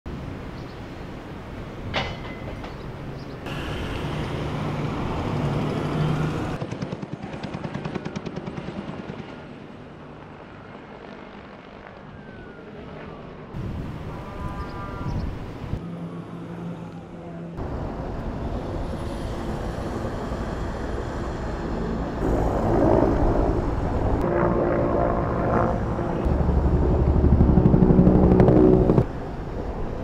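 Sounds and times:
helicopter rotor beating: 3.5 - 12.0, 17.6 - 30.0.

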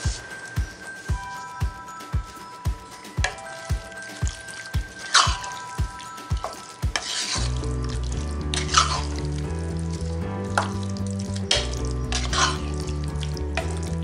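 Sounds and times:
background music with beat: 0.0 - 14.0
spatula scraping a pot: 7.0 - 7.7, 8.5 - 9.2, 11.6 - 12.9.

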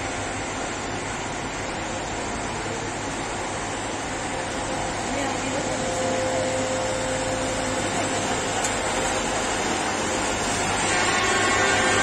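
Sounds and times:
machine engine humming: 0.0 - 12.0
wide rushing noise: 0.0 - 12.0
thin ringing tone: 5.4 - 9.4.

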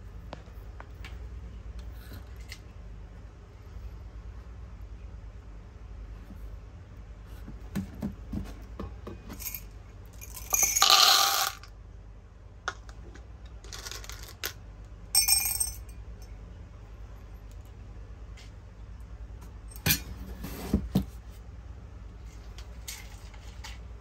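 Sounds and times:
hard candies clinking and rattling: 13.6 - 14.6.

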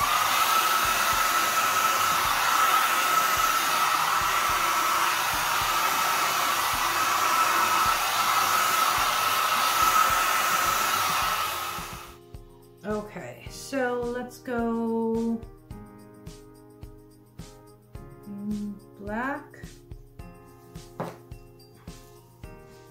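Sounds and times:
hair dryer running: 0.0 - 12.2, 21.0 - 21.2.

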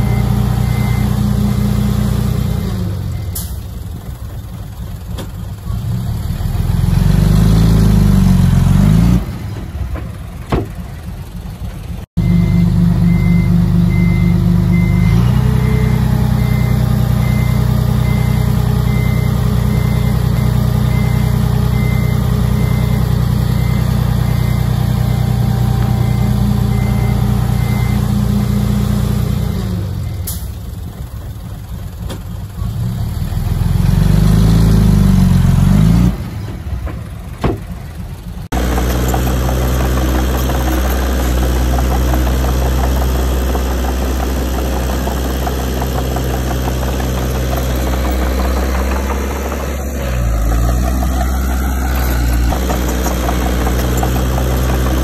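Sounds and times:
reversing alarm beeping: 0.0 - 1.9, 12.2 - 30.6
heavy diesel machinery running: 0.0 - 55.0.

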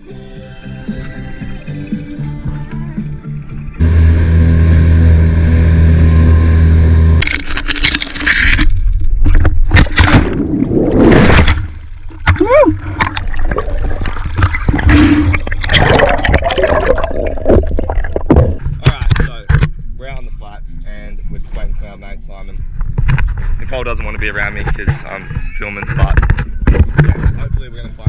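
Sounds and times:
outboard motor running: 3.8 - 8.0
water splashing and rushing: 7.2 - 19.3.

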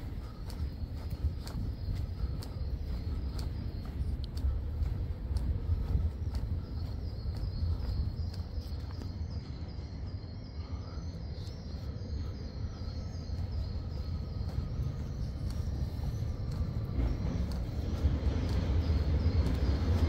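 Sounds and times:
faint high chirp: 0.0 - 20.0
traffic rumble: 0.0 - 20.0.

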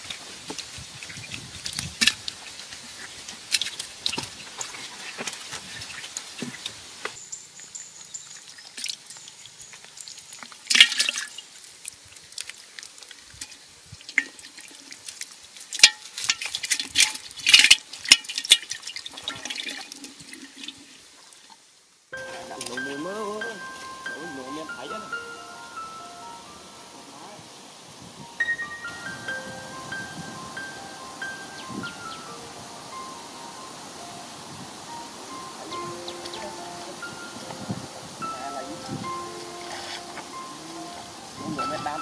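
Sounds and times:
fish splashing in muddy water: 8.4 - 21.5.

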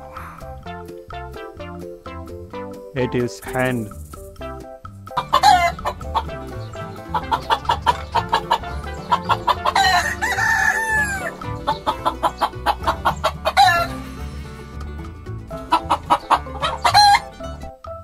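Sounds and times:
hens clucking: 5.1 - 14.1, 15.4 - 17.6
rooster crowing: 5.2 - 5.9, 9.6 - 11.4, 13.5 - 13.9, 16.4 - 17.3.

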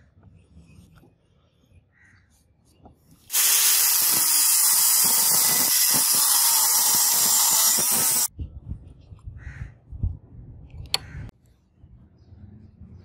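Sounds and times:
angle grinder cutting steel: 3.3 - 8.3.

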